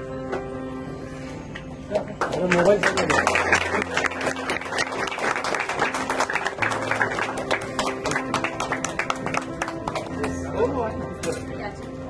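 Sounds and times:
background music: 0.0s - 12.0s
small group applauding: 1.9s - 10.6s.

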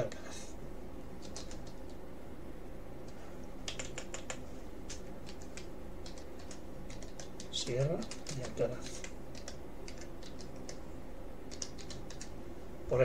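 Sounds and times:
steady low hum: 0.0s - 13.0s
keyboard key clicks: 3.7s - 10.8s.

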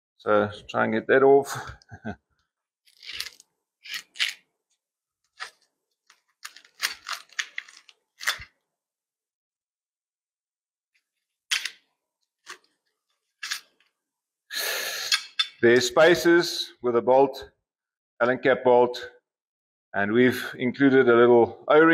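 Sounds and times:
plastic wrap crinkling: 5.3s - 8.6s.

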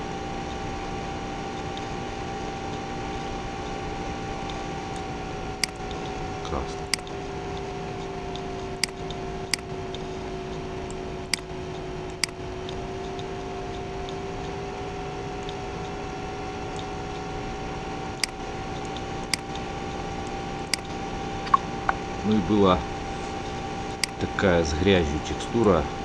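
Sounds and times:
electrical hum: 0.0s - 26.0s
faint drawn-out whine: 0.0s - 26.0s
computer mouse clicks: 4.4s - 6.2s, 6.8s - 14.6s, 18.2s - 19.7s, 20.6s - 22.0s.

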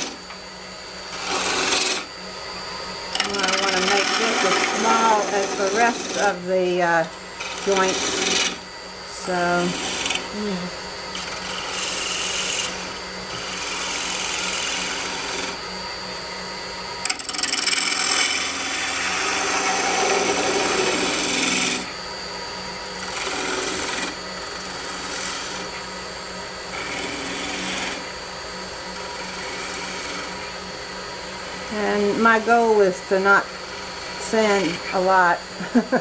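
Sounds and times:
wood lathe humming: 0.0s - 36.0s
gouge scraping wood: 1.1s - 2.1s, 3.1s - 8.6s, 9.3s - 10.5s, 11.1s - 15.6s, 17.0s - 21.9s, 23.0s - 25.8s, 26.7s - 28.1s, 29.0s - 30.5s.

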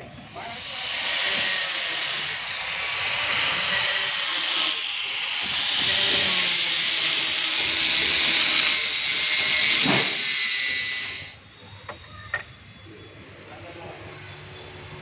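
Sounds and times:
angle grinder cutting metal pipe: 0.3s - 11.4s.

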